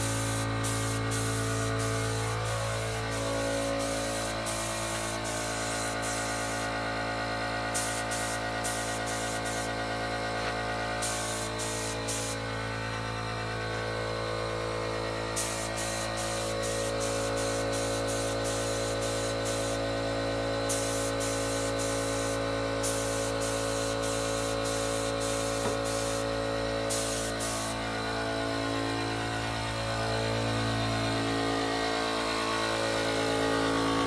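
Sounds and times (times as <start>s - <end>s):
high hissing noise: 0.0s - 6.7s, 11.0s - 12.4s, 26.9s - 27.8s.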